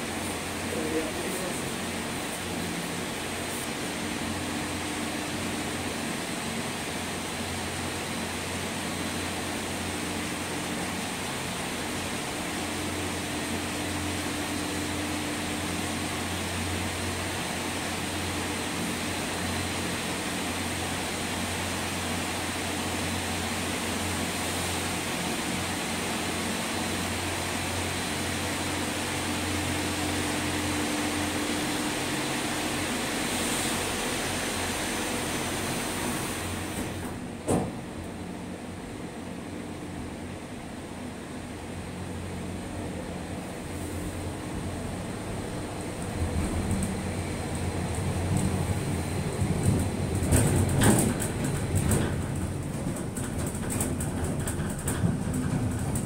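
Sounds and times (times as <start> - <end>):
conveyor machinery hum and whir: 0.0 - 56.0
gondola cabin clunk: 36.7 - 38.0, 45.8 - 56.0.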